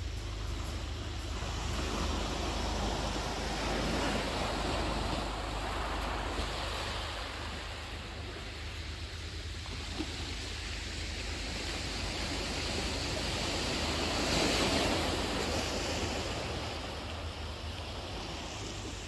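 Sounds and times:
sea waves washing on shore: 0.0s - 19.0s
wind rumbling on microphone: 0.0s - 19.0s.

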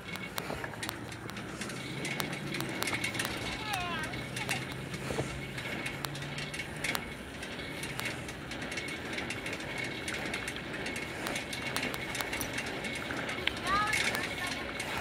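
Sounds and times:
bicycle freewheel hub clicking: 0.0s - 15.0s
tyres rolling on asphalt: 0.0s - 15.0s.

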